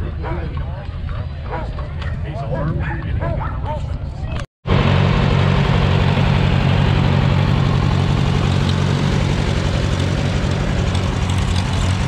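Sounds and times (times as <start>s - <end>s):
vehicle engine running: 4.7s - 12.0s.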